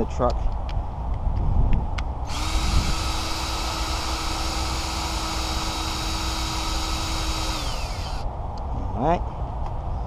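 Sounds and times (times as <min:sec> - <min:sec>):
power tool motor whining: 0:02.3 - 0:08.2.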